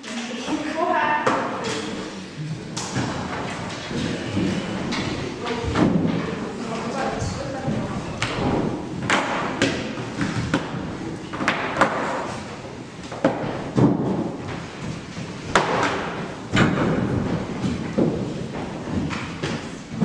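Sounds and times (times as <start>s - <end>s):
shuffling room noise: 14.4s - 20.0s.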